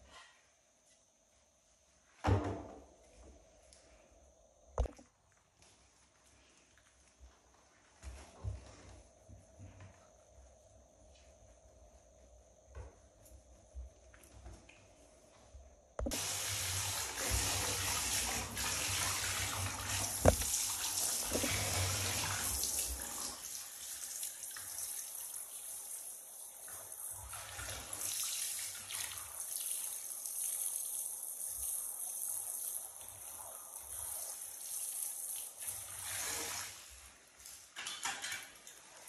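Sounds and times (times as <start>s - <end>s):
shower sprayer running: 16.0s - 24.1s
water splashing into bath: 16.0s - 25.2s.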